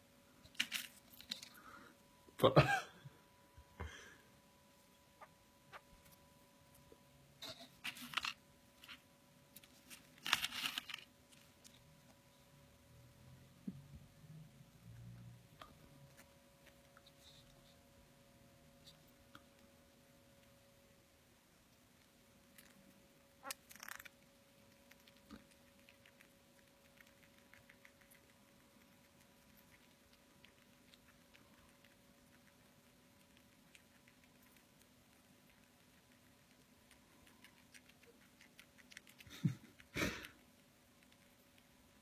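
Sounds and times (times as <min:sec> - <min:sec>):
faint steady hum: 0:00.0 - 0:42.0
crinkly rustling and crunching: 0:00.5 - 0:01.6, 0:07.6 - 0:11.9.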